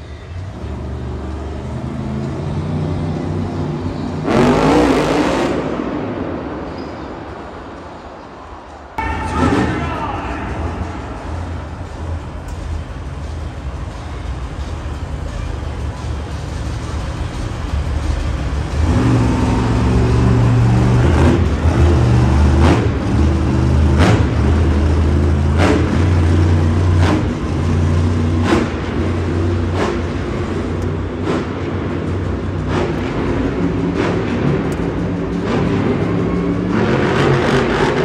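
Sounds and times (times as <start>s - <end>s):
monster truck engine revving: 0.0s - 6.8s, 9.1s - 38.0s
loud arena music with drums: 9.0s - 38.0s.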